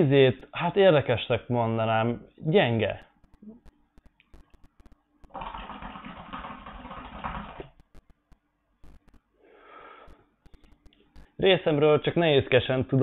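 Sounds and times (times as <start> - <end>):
soft breath: 9.4 - 10.7.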